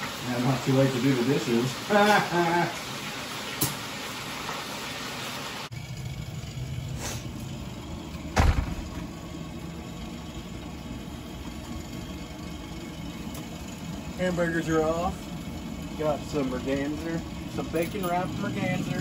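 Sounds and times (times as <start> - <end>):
low motor hum: 5.7 - 19.0
heavier knock: 8.4 - 9.0.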